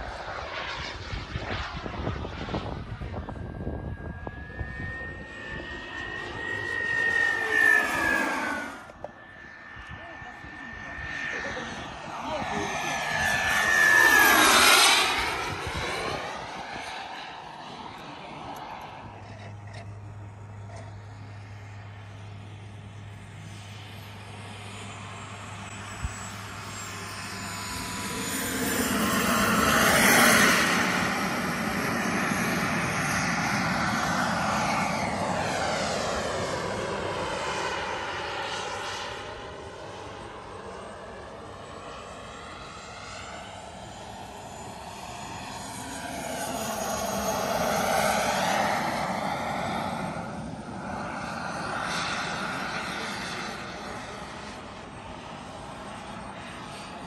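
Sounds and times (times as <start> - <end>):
model jet turbine engine: 0.0 - 57.0.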